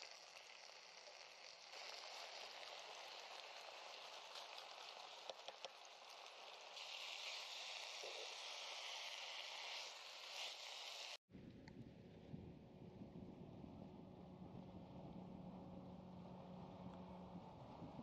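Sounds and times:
food sizzling in a pan: 0:00.0 - 0:11.2.

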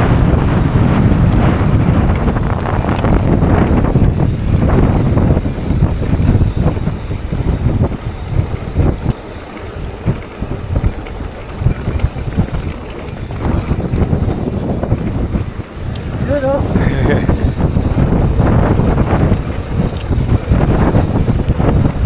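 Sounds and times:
bike knocking and rattling: 0:00.0 - 0:22.0
wind on microphone: 0:00.0 - 0:22.0.

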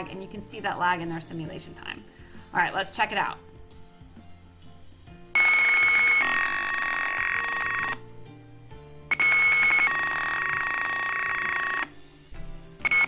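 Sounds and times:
two-pitch electronic buzzer tones: 0:05.4 - 0:08.0, 0:09.1 - 0:12.0.

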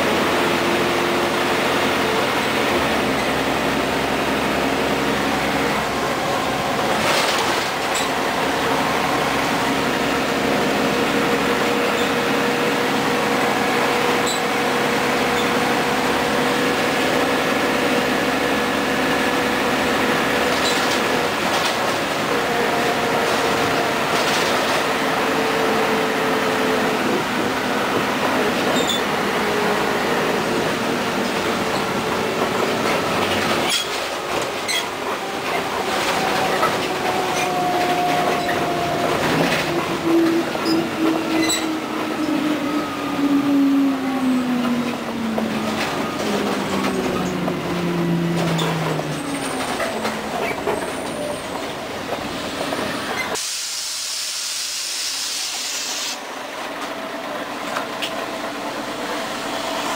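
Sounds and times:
road and tyre noise: 0:00.0 - 0:53.6
pneumatic doors hissing: 0:52.5 - 0:56.2.

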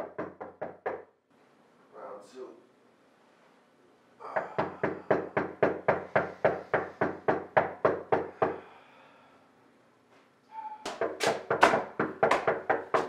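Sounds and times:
rapid knocking on door: 0:00.0 - 0:01.1, 0:04.3 - 0:08.6, 0:10.9 - 0:13.0.

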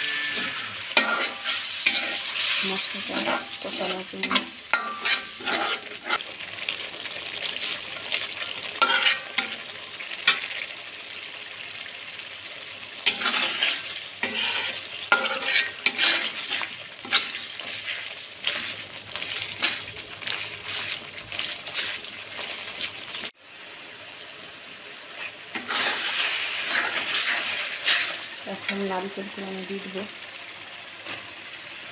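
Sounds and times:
spoon scraping metal pan: 0:00.0 - 0:06.2, 0:08.8 - 0:09.6, 0:13.0 - 0:22.6, 0:25.2 - 0:29.4
paste sizzling in pan: 0:00.0 - 0:31.9.

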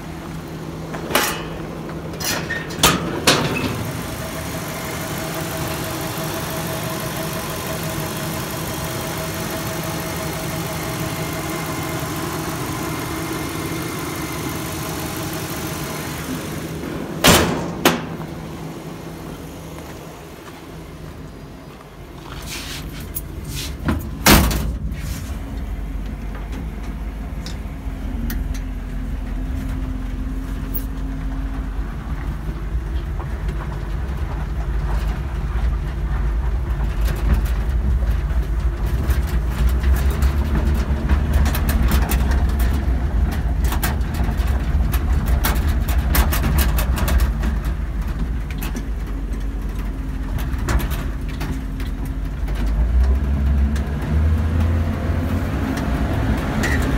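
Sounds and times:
truck engine running: 0:00.0 - 0:56.9
small clicks and rattles: 0:30.7 - 0:54.8.

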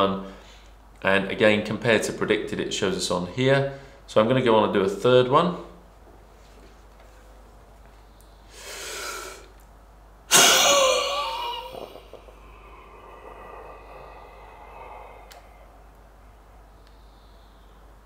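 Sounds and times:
person breathing in deeply: 0:08.3 - 0:09.5, 0:10.5 - 0:17.9
hard blast of exhaled breath: 0:08.4 - 0:09.5, 0:10.3 - 0:17.7.

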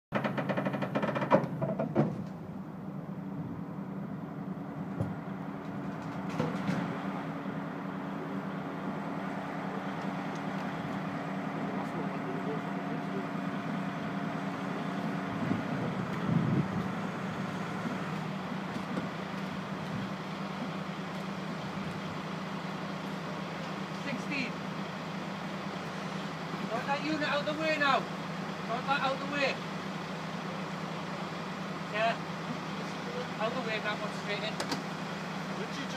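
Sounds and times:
engine knock: 0:00.1 - 0:02.2
engine clatter: 0:00.1 - 0:02.9, 0:04.4 - 0:35.9
truck diesel engine idling: 0:00.2 - 0:35.9.

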